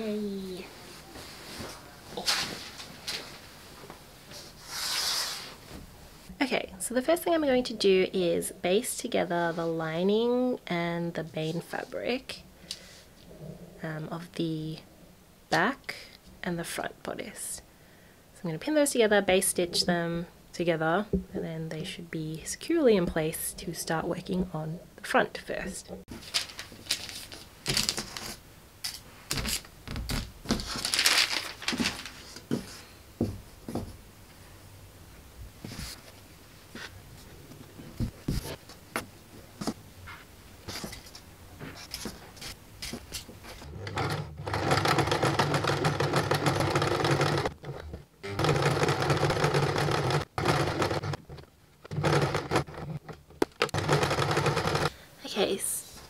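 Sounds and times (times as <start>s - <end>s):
sewing machine running: 43.7s - 53.0s, 53.6s - 54.9s.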